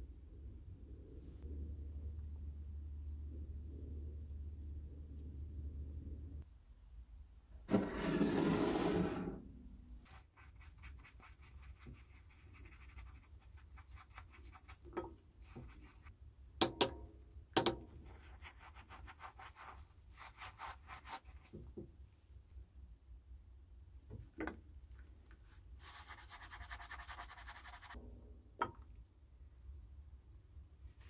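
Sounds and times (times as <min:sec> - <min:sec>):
sponge scrubbing metal tube: 0:18.0 - 0:21.7, 0:25.8 - 0:28.0.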